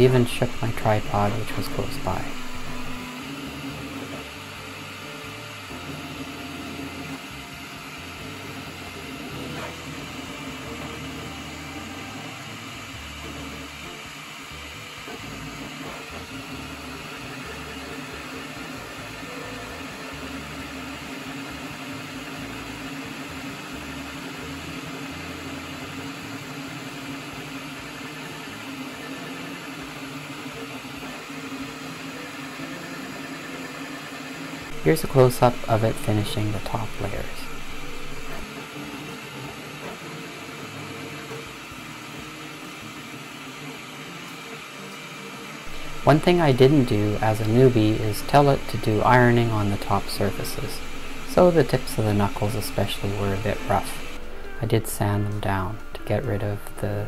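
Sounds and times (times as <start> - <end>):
steady hiss: 0.0 - 3.0, 34.7 - 38.4, 45.7 - 57.0
printer stepper motors whirring: 0.0 - 57.0.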